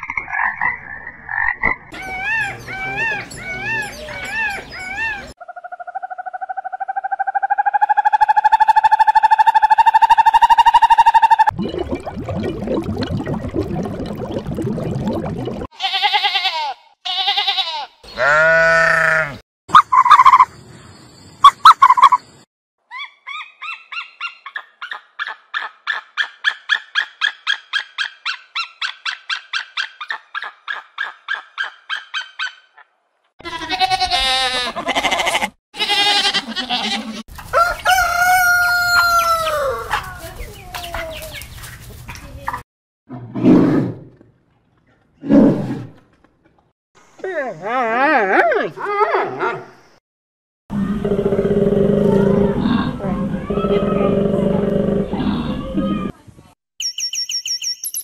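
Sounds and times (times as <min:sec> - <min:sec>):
eagle yelping call: 0:01.9 - 0:11.5, 0:19.7 - 0:20.5, 0:22.9 - 0:32.8
murky water noise: 0:11.5 - 0:15.7
rooster crowing: 0:37.5 - 0:40.0
chickens clucking: 0:38.9 - 0:42.6.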